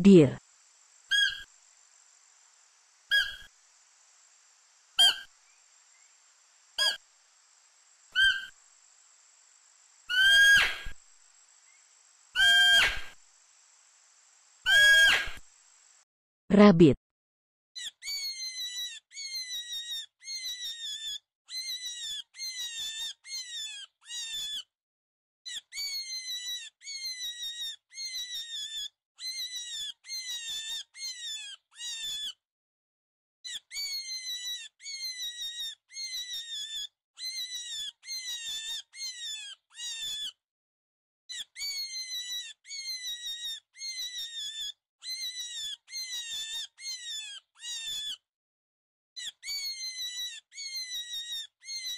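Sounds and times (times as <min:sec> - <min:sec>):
high-pitched animal squeaks: 0:01.1 - 0:01.5, 0:03.1 - 0:03.5, 0:05.0 - 0:05.3, 0:06.8 - 0:07.0, 0:08.2 - 0:08.6, 0:10.1 - 0:11.0, 0:12.4 - 0:13.2, 0:14.7 - 0:15.4, 0:17.8 - 0:24.7, 0:25.5 - 0:32.4, 0:33.4 - 0:40.4, 0:41.3 - 0:48.3, 0:49.2 - 0:51.9.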